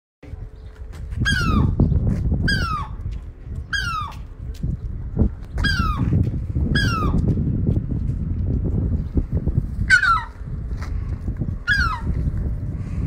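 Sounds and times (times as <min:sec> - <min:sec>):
wind rumble on microphone: 0:00.2 - 0:13.0
gull alarm cries: 0:11.6 - 0:12.1.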